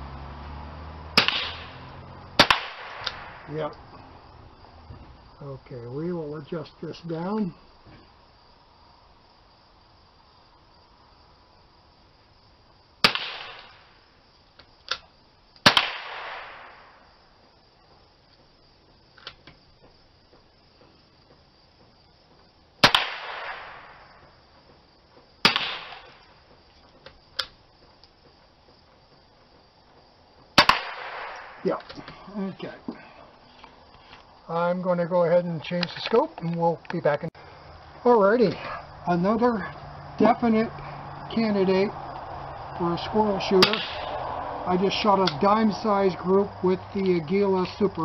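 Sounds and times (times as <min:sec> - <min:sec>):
rifle shots with echo: 0:01.2 - 0:01.7, 0:02.4 - 0:03.5, 0:13.0 - 0:13.8, 0:15.6 - 0:16.8, 0:22.8 - 0:24.0, 0:25.4 - 0:26.2, 0:30.6 - 0:31.7, 0:43.6 - 0:44.1.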